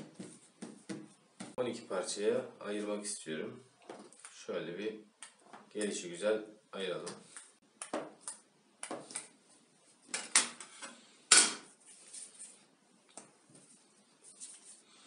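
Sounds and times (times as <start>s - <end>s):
dough being handled: 11.7s - 15.0s.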